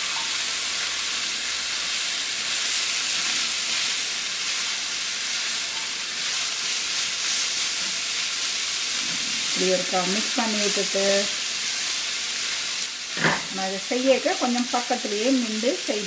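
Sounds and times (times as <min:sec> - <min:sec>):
beans sizzling in hot oil: 0:00.0 - 0:16.0.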